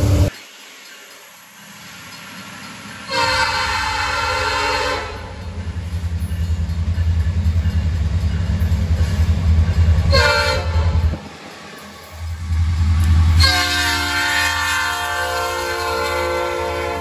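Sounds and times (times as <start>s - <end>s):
locomotive engine rumble: 0.0s - 0.3s, 2.0s - 17.0s
locomotive air horn: 3.1s - 5.4s, 10.1s - 11.0s, 13.4s - 17.0s.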